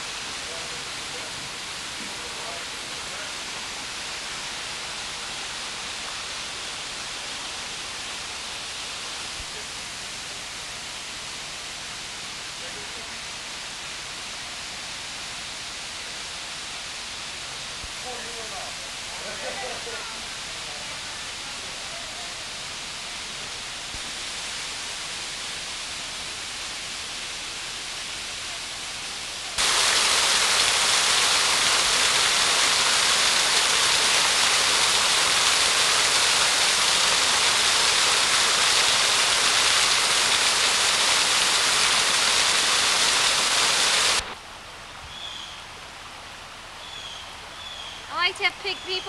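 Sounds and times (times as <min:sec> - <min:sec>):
water rushing down a flume: 0:00.0 - 0:44.7
soft steady hiss: 0:00.0 - 0:49.0.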